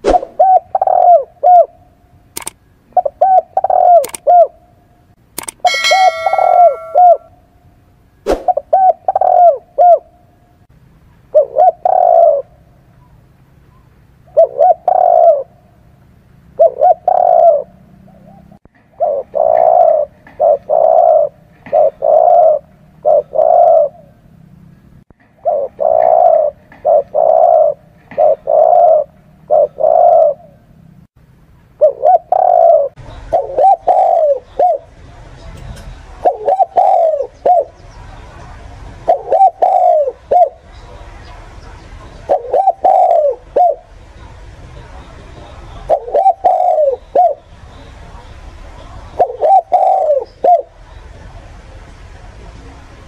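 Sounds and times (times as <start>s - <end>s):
dove cooing: 0.2s - 1.9s, 3.0s - 4.6s, 5.7s - 7.3s, 8.5s - 10.2s, 11.3s - 12.6s, 14.3s - 15.7s, 16.6s - 24.2s, 25.4s - 30.7s, 31.8s - 34.9s, 36.2s - 37.8s, 39.1s - 40.6s, 42.3s - 43.9s, 45.8s - 47.4s, 49.2s - 50.7s
sharp click: 2.4s - 2.6s, 4.0s - 4.3s, 5.4s - 7.1s.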